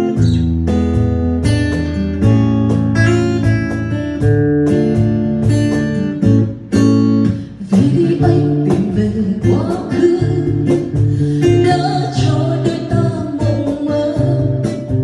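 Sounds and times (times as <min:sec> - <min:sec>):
acoustic guitar strumming: 0:00.0 - 0:15.0
woman singing: 0:07.3 - 0:15.0.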